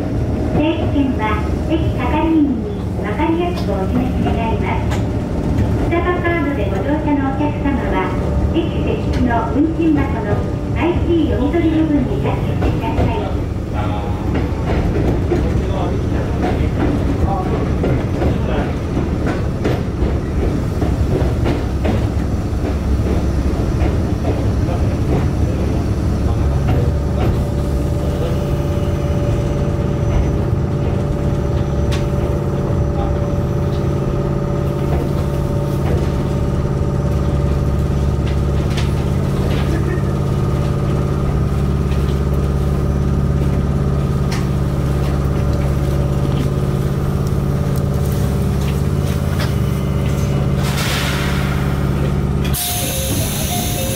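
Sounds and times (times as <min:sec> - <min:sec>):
electric train equipment humming: 0:00.0 - 0:53.9
air hiss: 0:52.5 - 0:53.9.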